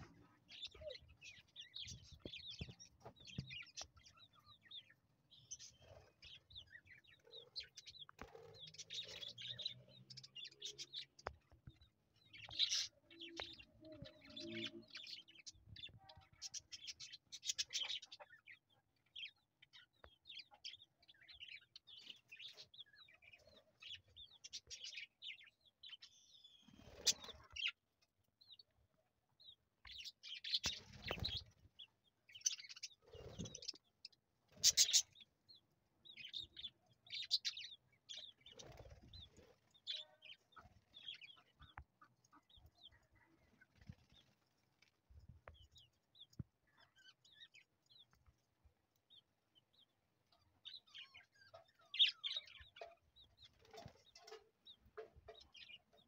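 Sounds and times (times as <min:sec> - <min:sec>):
budgerigars chirping: 0:34.5 - 0:35.2.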